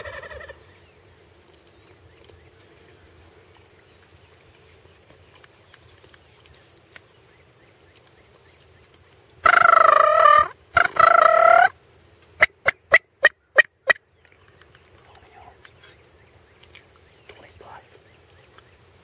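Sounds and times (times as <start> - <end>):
turkey calling: 0.0 - 0.8, 9.4 - 11.8, 12.4 - 14.0.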